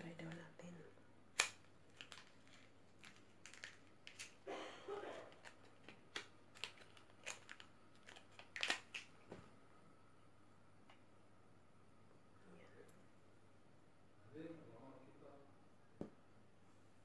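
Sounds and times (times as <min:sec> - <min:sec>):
packaging rustle: 0:01.4 - 0:04.4, 0:05.2 - 0:09.2.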